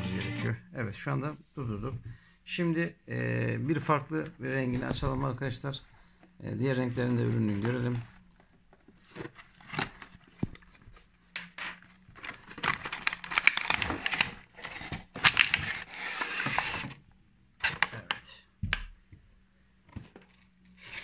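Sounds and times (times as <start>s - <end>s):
rustling of cardboard packaging: 4.6s - 17.0s.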